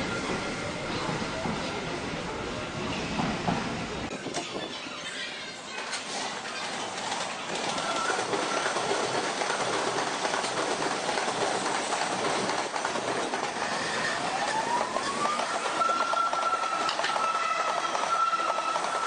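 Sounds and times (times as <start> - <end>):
train whine: 0.0 - 19.0
train wheels clattering over rails: 5.7 - 19.0.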